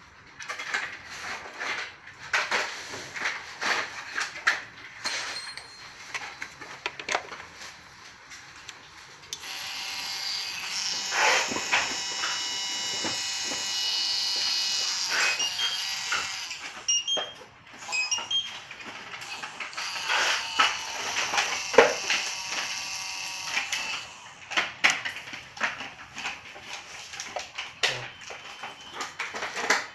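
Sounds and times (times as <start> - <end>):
small electric grinder whining: 9.4 - 16.9, 19.2 - 24.6.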